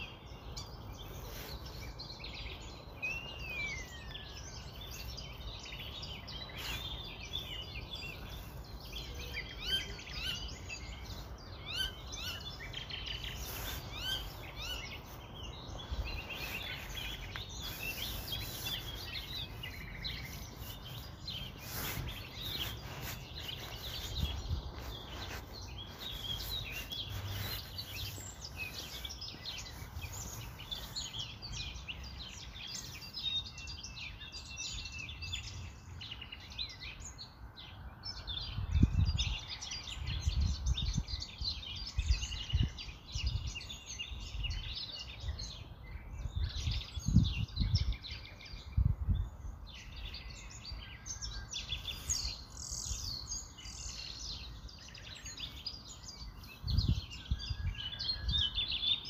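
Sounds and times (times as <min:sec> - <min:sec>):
small birds chirping: 0:00.0 - 0:59.0.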